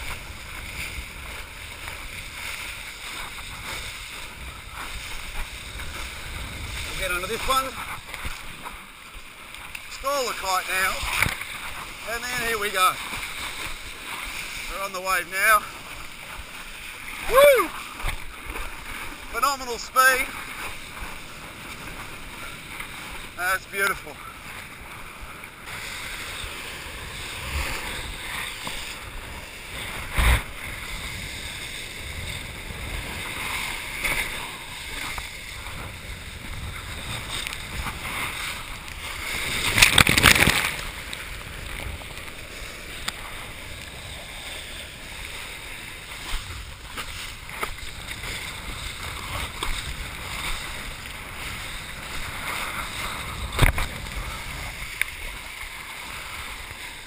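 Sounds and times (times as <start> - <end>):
rushing water and spray: 0.0 - 57.0.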